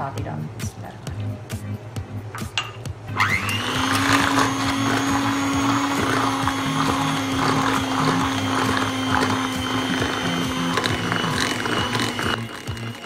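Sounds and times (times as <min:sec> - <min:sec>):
electric hand mixer whining: 0:03.1 - 0:13.0.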